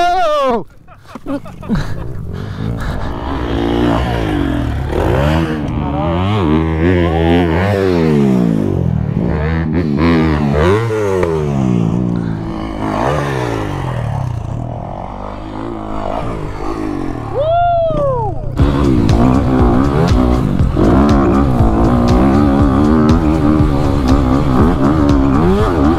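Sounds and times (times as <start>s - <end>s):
dirt bike engines revving: 0.0s - 25.9s
close motorcycle engine under throttle: 2.0s - 17.4s, 18.6s - 25.9s
rising and falling tone: 10.8s - 25.9s.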